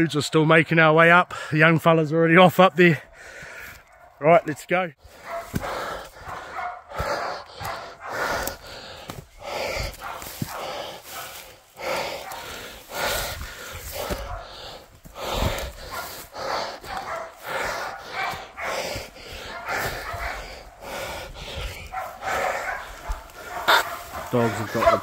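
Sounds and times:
person breathing heavily: 1.2 - 1.7, 3.0 - 3.9, 5.0 - 25.0
dogs barking: 3.8 - 25.0
footsteps through brush: 5.0 - 25.0.

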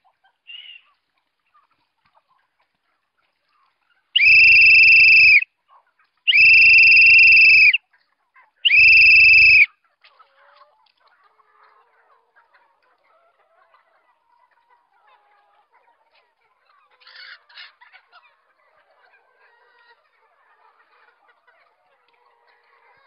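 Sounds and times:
faint chicken sounds: 0.0 - 23.0
high whistle blasts: 4.2 - 5.4, 6.3 - 7.8, 8.7 - 9.7.

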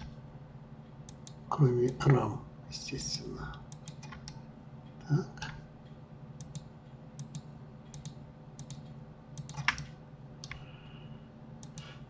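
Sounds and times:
steady low hum: 0.0 - 12.0
mouse and keyboard clicks: 6.4 - 10.6.

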